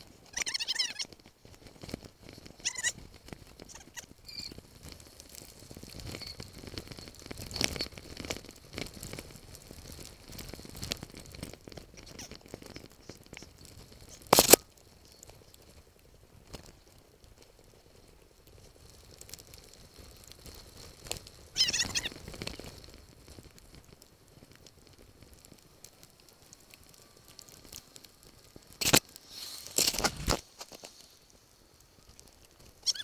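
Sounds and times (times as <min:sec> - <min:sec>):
mountain bike rattling: 0:00.0 - 0:15.6, 0:16.4 - 0:31.0
short high squeak: 0:03.7 - 0:04.6.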